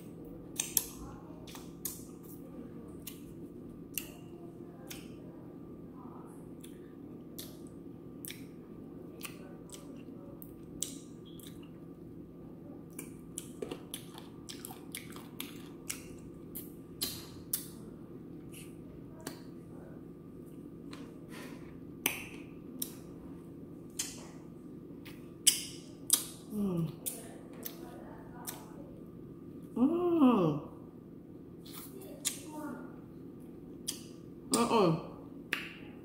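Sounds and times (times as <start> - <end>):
steady low hum: 0.0 - 36.0
lip smacks and sucking clicks: 0.5 - 2.1, 6.6 - 8.5, 12.9 - 17.8.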